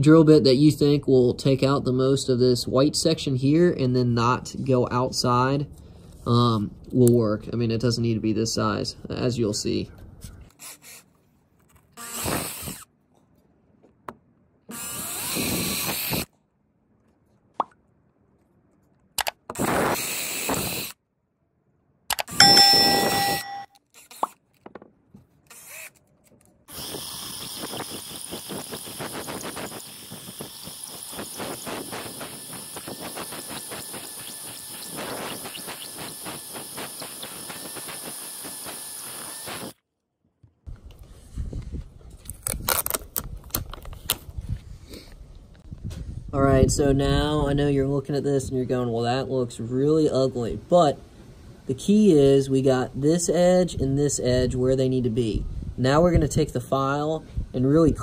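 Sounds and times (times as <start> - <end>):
cordless drill boring through plastic: 10.5 - 11.1, 12.0 - 12.9, 14.7 - 16.3, 19.5 - 21.0, 24.0 - 24.4, 25.5 - 26.0, 26.7 - 39.8
sharp clicks: 22.1 - 24.4.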